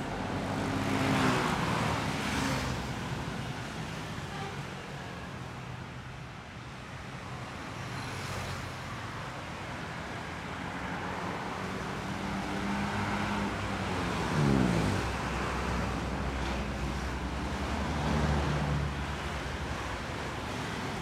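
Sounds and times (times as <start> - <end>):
road traffic engines: 0.0 - 21.0
vehicle passing close: 12.6 - 16.6.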